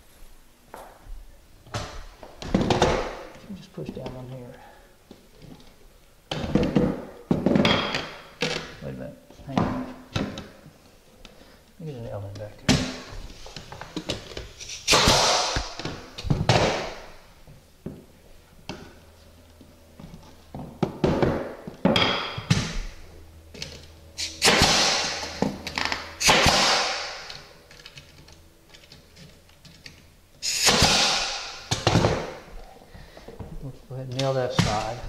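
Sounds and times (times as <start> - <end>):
nail gun shots: 14.7 - 15.9, 24.2 - 27.4, 30.4 - 32.4.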